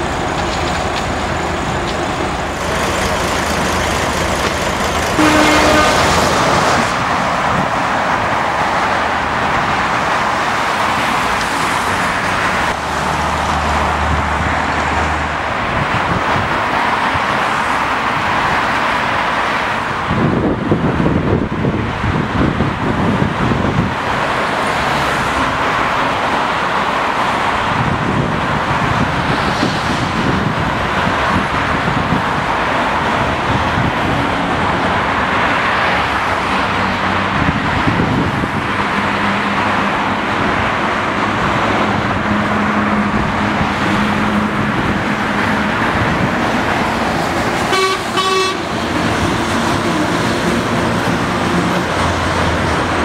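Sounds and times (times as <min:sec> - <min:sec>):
road traffic passing: 0:00.0 - 0:53.0
car horn toot: 0:05.2 - 0:06.2, 0:47.7 - 0:48.8.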